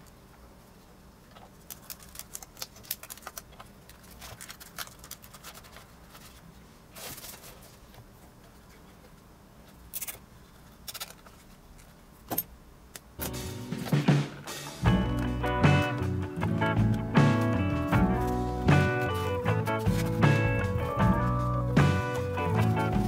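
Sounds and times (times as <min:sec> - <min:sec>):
rubber balloon rubbing rustles: 0:16.6 - 0:23.0.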